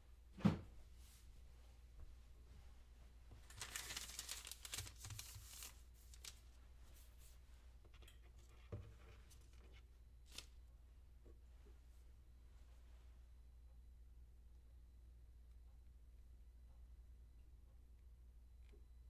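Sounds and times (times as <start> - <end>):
faint low hum: 0.0 - 19.0
crisp crinkling rustle: 3.4 - 7.2.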